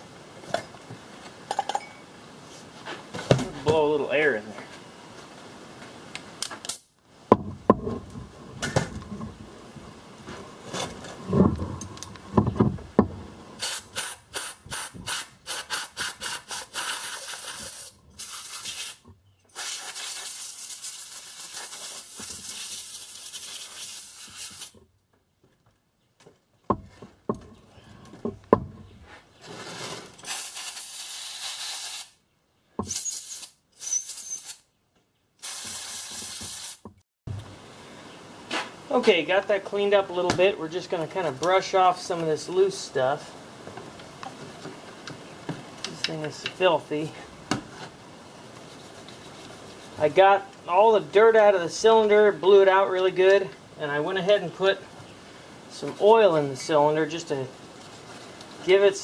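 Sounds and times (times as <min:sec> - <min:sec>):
knocks and clatter: 0:10.7 - 0:13.2
compressed air blow gun hissing: 0:13.6 - 0:24.7, 0:35.4 - 0:36.8.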